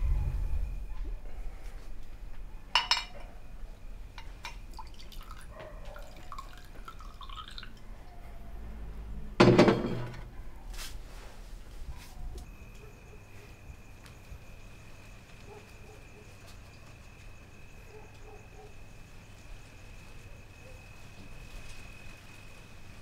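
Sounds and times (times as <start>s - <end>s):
glass bottles clinking: 2.7s - 3.2s
drink pouring into glass: 4.4s - 7.9s.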